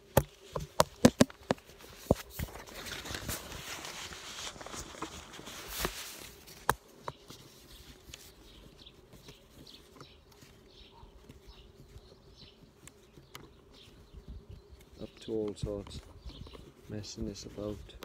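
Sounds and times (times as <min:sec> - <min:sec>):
rustling scrape: 0:01.6 - 0:14.1.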